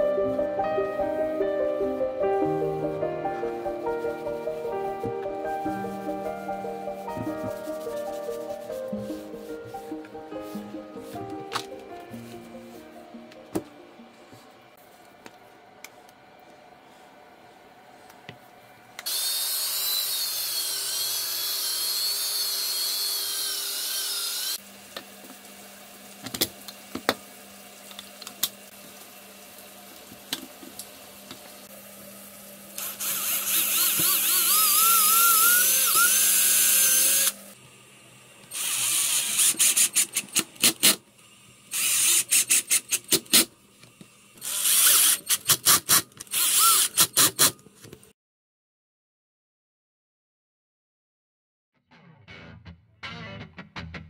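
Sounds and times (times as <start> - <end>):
cordless drill running: 19.0 - 24.6, 32.8 - 37.6, 38.4 - 41.0, 41.7 - 43.2, 44.4 - 47.5.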